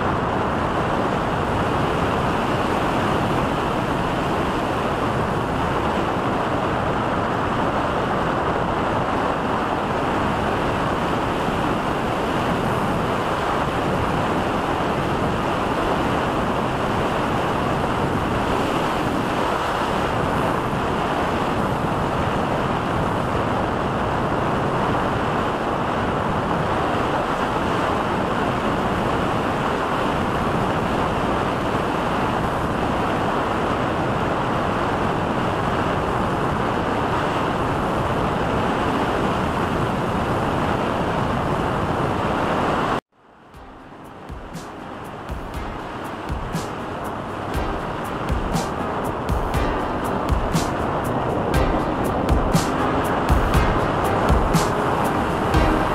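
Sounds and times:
wind rushing over microphone: 0.0 - 43.0.

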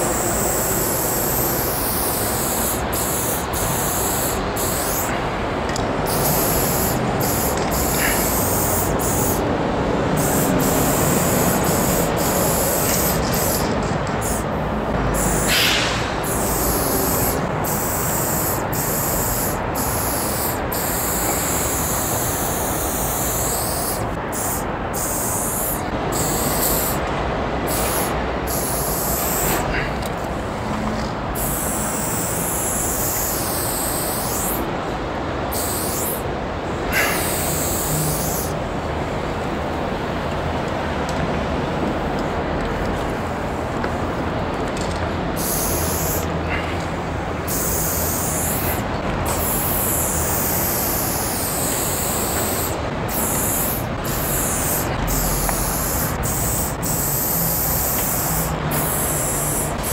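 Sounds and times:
spray paint can hissing: 0.0 - 30.3, 31.0 - 34.7, 35.4 - 36.3, 36.9 - 38.6, 45.3 - 46.6, 47.4 - 59.9.

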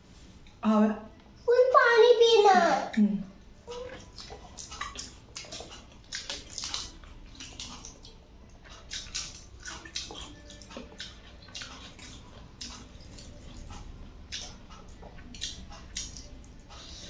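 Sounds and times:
fingers squishing food on plate: 3.7 - 17.0
wet chewing and lip smacks: 3.7 - 17.0.

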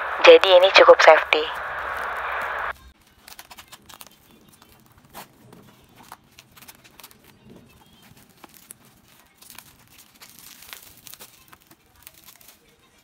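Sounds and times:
plastic bag crinkling: 6.0 - 13.0.

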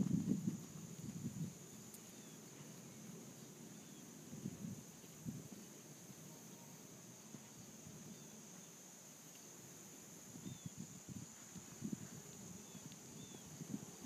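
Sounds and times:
hooves thudding on sand: 0.0 - 3.4
high insect drone: 0.0 - 14.0.

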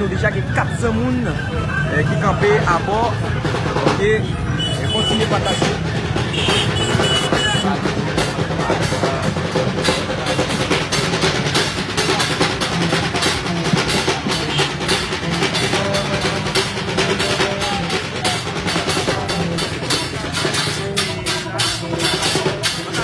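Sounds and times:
street drum band: 0.0 - 23.0.

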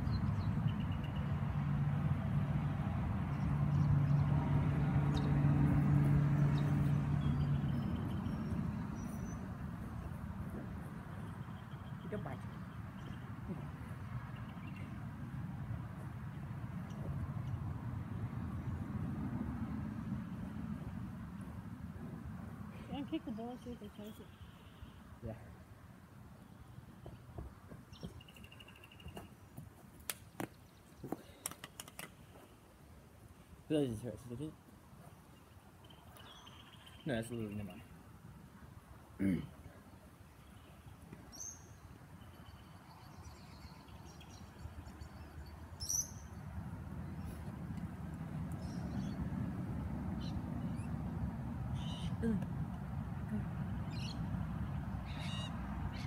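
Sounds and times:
vehicle engine humming: 0.0 - 12.4
sharp clicks and light taps: 31.4 - 32.2.

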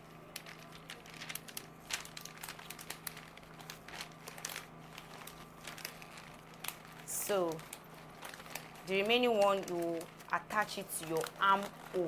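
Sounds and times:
paper crumpling by hand: 0.0 - 12.0.

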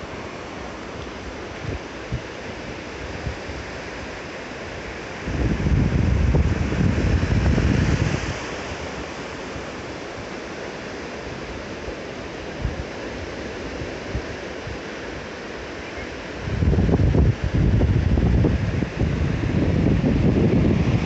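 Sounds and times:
sea surf washing up shore: 0.0 - 21.0
wind buffeting microphone: 1.2 - 3.8, 5.1 - 9.7, 16.4 - 21.0.

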